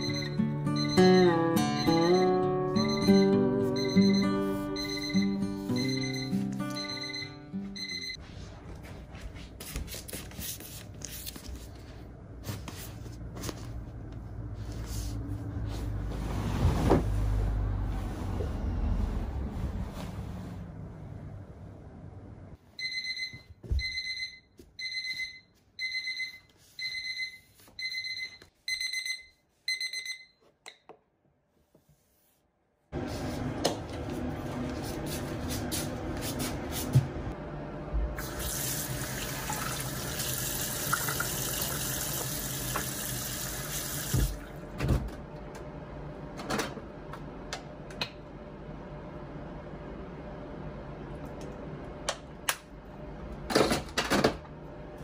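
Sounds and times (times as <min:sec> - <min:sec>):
electronic alarm beeping: 0:00.0 - 0:08.2, 0:22.8 - 0:30.4
slipper footsteps shuffling: 0:07.6 - 0:17.2, 0:33.0 - 0:37.2
washbasin tap running: 0:38.2 - 0:44.5.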